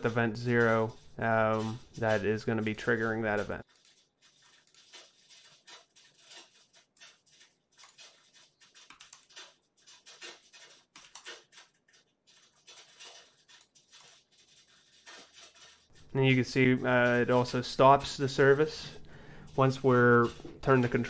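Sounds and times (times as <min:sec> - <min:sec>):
computer keyboard typing: 0:00.5 - 0:15.8.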